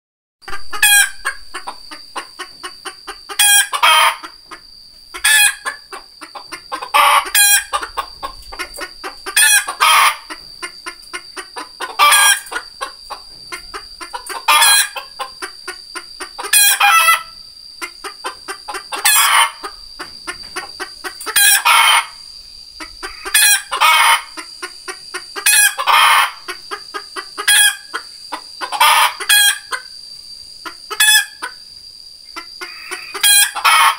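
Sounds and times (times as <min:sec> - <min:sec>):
rooster calling: 0:00.4 - 0:04.6, 0:05.2 - 0:17.4, 0:18.3 - 0:22.2, 0:22.8 - 0:24.6, 0:25.4 - 0:26.7, 0:27.4 - 0:29.9, 0:32.4 - 0:33.9
short clucks: 0:17.8 - 0:22.0.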